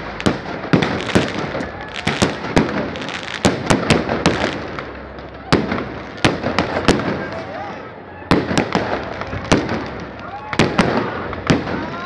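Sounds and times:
fireworks bangs: 0.0s - 12.0s
fireworks crackling: 0.0s - 12.0s.

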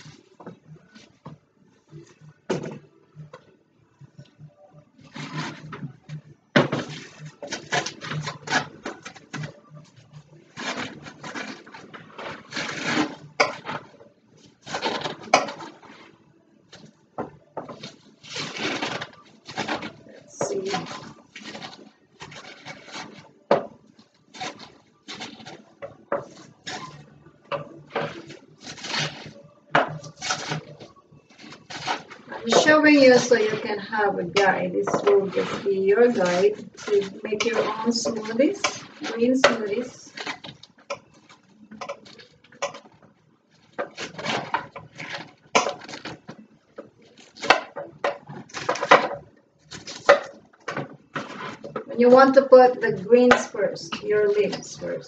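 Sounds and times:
leaves rustling in blender jar: 27.9s - 40.7s.

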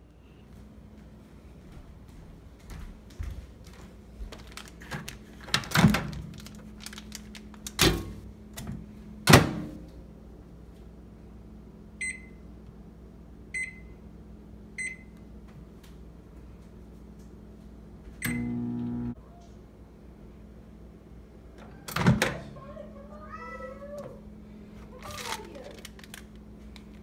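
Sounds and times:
keypad beeps: 12.0s - 12.4s, 13.6s - 13.9s, 14.8s - 15.1s.

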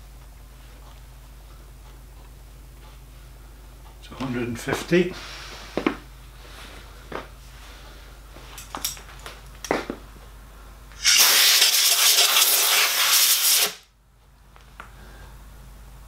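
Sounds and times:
loud spraying hiss: 11.0s - 13.8s.

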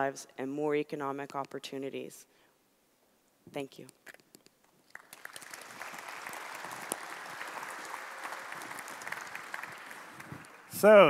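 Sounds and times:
audience applauding: 4.9s - 11.0s.

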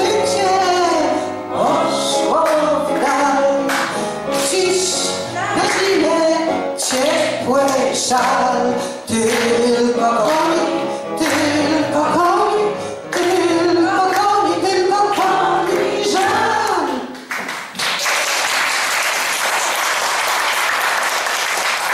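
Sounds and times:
backing music: 0.0s - 17.7s
woman singing: 5.0s - 6.4s
audience applauding: 5.4s - 8.5s, 9.2s - 12.4s, 15.1s - 21.9s.

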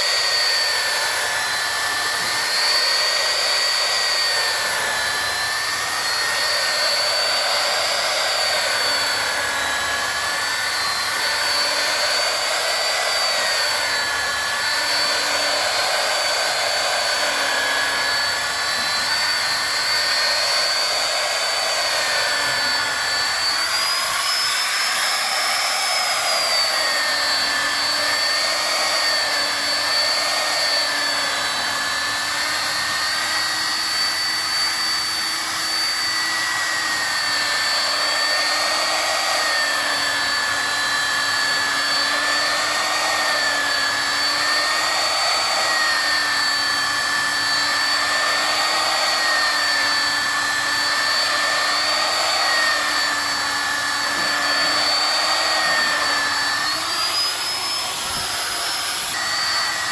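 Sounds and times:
angle grinder polishing acrylic: 0.0s - 59.9s.

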